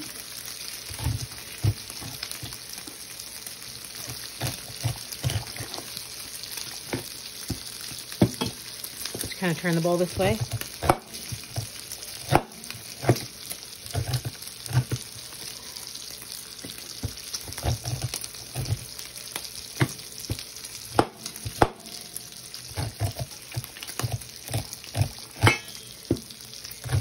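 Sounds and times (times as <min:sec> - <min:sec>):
bacon sizzling in a skillet: 0:00.0 - 0:27.0
knife scraping against metal bowl: 0:04.2 - 0:05.9, 0:22.7 - 0:26.0.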